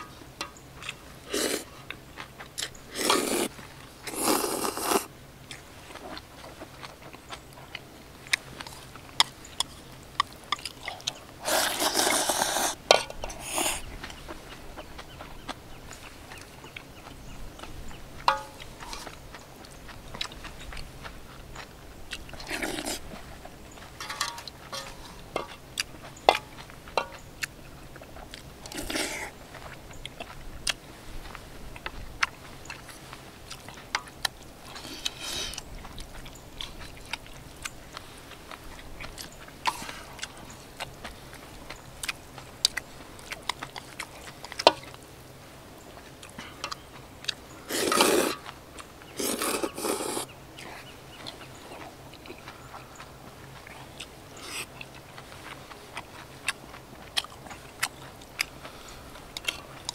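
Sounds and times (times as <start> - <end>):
chewing: 0.0 - 59.9
slurping noodles: 1.2 - 1.7, 2.9 - 5.1, 11.4 - 13.9, 22.4 - 23.1, 28.7 - 29.3, 47.7 - 48.4, 49.2 - 50.3.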